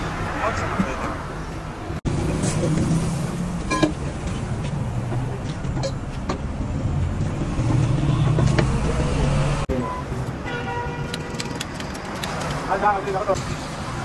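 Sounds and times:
vehicle engine rumbling: 0:00.4 - 0:10.4.

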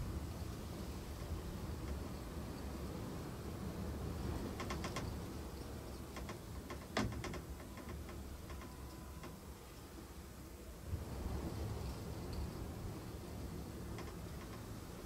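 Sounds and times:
light clicks and ticks: 0:05.9 - 0:09.4, 0:13.9 - 0:14.8.

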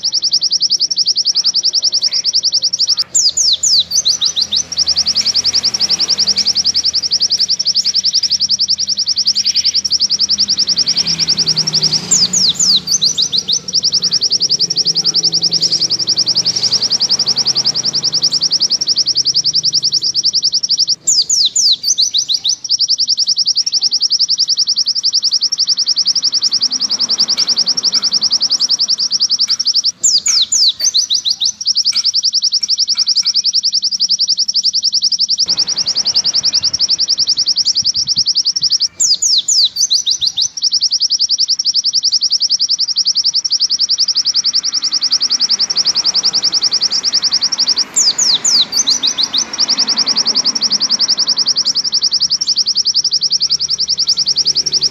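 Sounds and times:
bird chirping trill: 0:00.0 - 0:54.9
falling whistled bird notes: 0:00.0 - 0:54.9.

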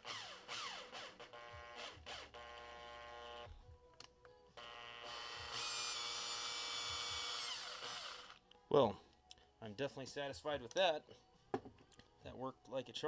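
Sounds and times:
cordless drill motor whining: 0:00.0 - 0:03.6, 0:04.6 - 0:08.4.

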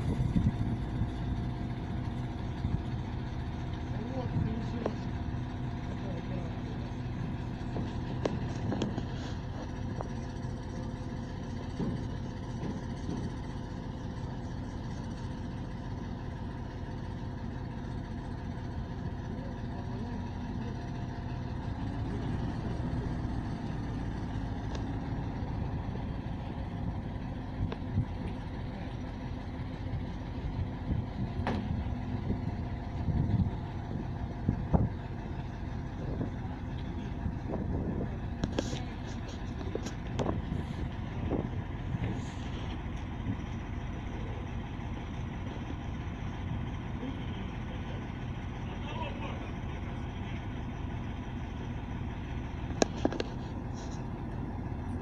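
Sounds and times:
diesel engine running: 0:00.0 - 0:55.0
metal knocks and clanks: 0:11.5 - 0:13.6.

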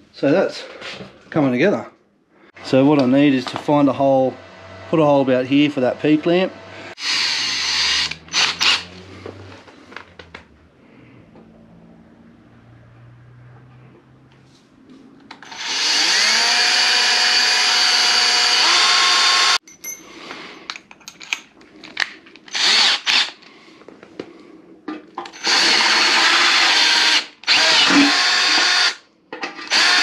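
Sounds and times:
cordless drill drilling metal: 0:06.9 - 0:09.0, 0:15.4 - 0:19.6, 0:22.5 - 0:23.4, 0:25.3 - 0:29.0, 0:29.6 - 0:30.0.

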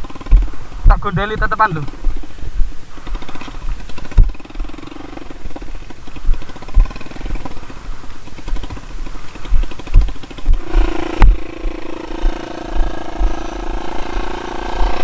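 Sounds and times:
motorcycle engine revving: 0:00.0 - 0:15.0
bike thumping over ground: 0:03.1 - 0:04.6.

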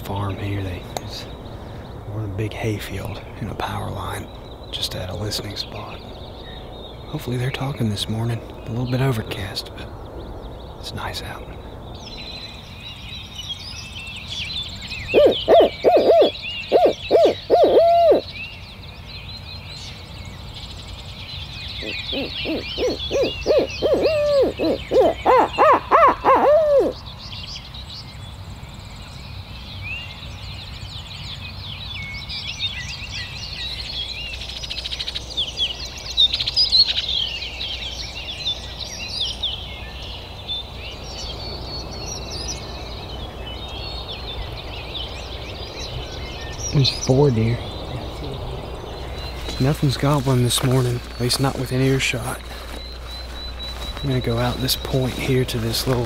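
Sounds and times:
songbirds singing: 0:00.0 - 0:56.0
owl hooting: 0:15.0 - 0:18.4, 0:21.8 - 0:27.0.

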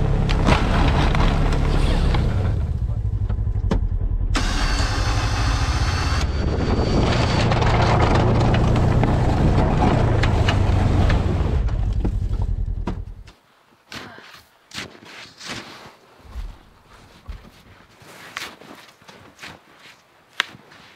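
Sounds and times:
plow blade scraping through snow: 0:00.0 - 0:03.5, 0:04.4 - 0:12.7
engine running under load: 0:00.0 - 0:13.2.

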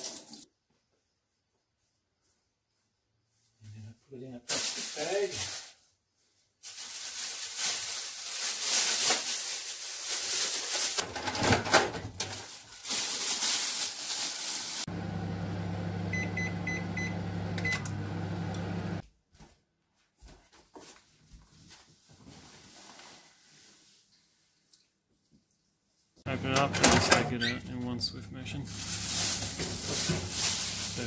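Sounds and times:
plastic bag crinkling: 0:06.6 - 0:11.2, 0:12.2 - 0:14.9, 0:28.5 - 0:31.0
microwave oven humming: 0:14.9 - 0:19.0, 0:26.3 - 0:31.0
microwave keypad beeps: 0:16.1 - 0:17.9.

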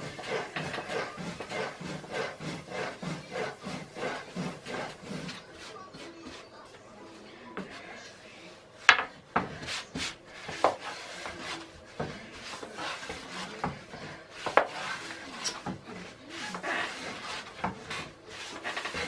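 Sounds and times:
rolling pin rubbing dough: 0:00.0 - 0:06.8, 0:07.5 - 0:19.0.

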